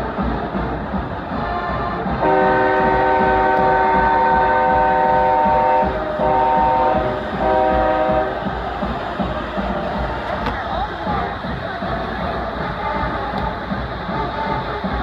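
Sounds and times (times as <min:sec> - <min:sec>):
multi-tone air horn blasts: 0:02.2 - 0:08.5.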